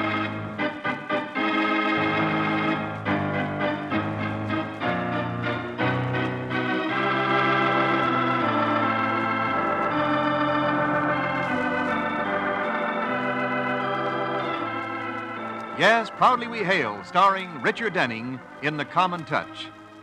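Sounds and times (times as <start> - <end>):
organ playing slow chords: 0.0 - 20.0.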